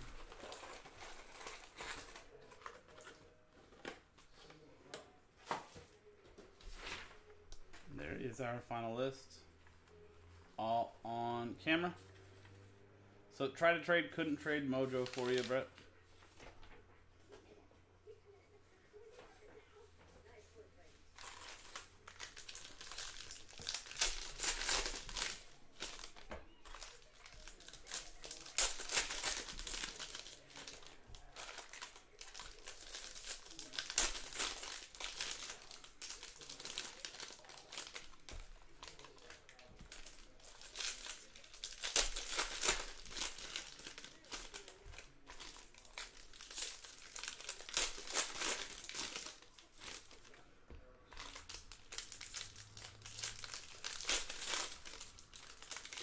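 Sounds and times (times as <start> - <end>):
foil wrappers tearing and crinkling: 0.0 - 3.2, 14.7 - 15.7, 21.2 - 50.4, 51.1 - 56.0.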